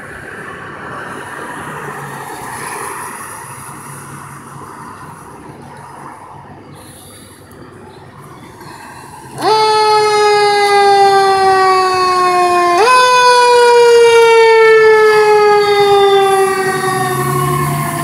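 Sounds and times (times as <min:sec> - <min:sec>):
fire truck siren: 0:00.0 - 0:04.6, 0:08.2 - 0:18.0.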